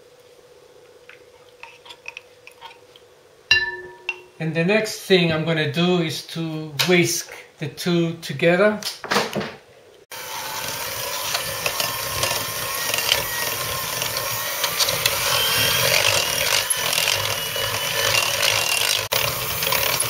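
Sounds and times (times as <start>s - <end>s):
electric hand mixer whisking: 10.1s - 20.0s.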